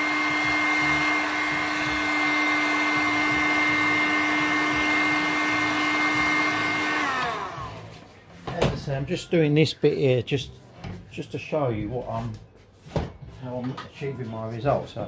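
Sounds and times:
heat gun blowing and whining: 0.0s - 7.9s.

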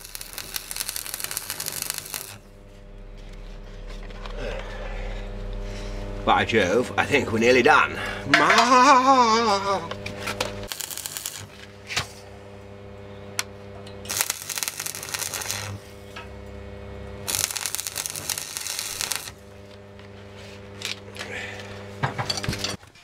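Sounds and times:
crackling welding arc: 0.0s - 2.6s, 10.6s - 12.0s, 13.4s - 19.8s
steady low hum: 0.0s - 22.8s.

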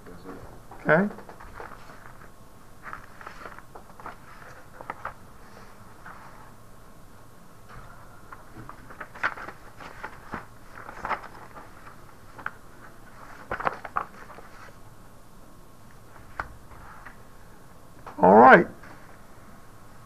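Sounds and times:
faint room noise: 0.0s - 20.0s.

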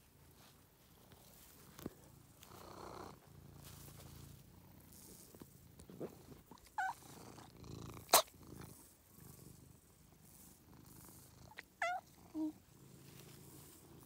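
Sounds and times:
cat purring: 0.2s - 14.0s
cat high chirp: 11.8s - 12.5s.

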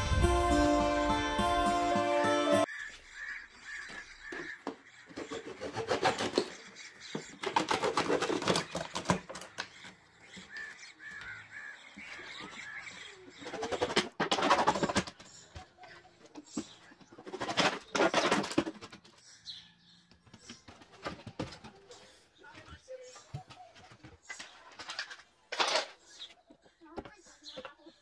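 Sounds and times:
knife sawing through plastic: 5.0s - 9.5s.

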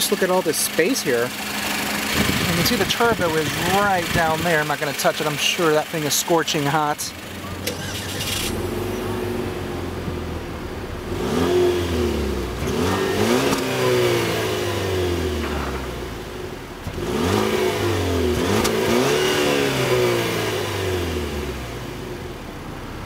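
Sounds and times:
car exhaust idling and revving: 0.0s - 23.0s.

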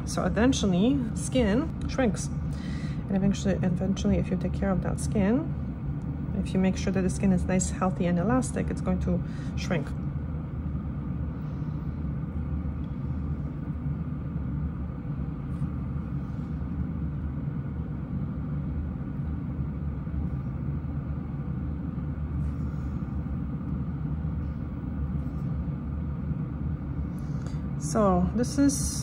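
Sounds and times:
dust collector fan humming: 0.0s - 29.0s.

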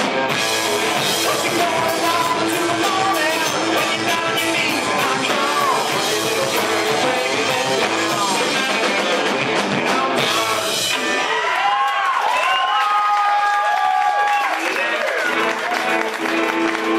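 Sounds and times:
electric guitar: 0.0s - 12.2s, 15.1s - 16.9s
drums: 0.0s - 16.9s
person singing: 0.9s - 11.5s.

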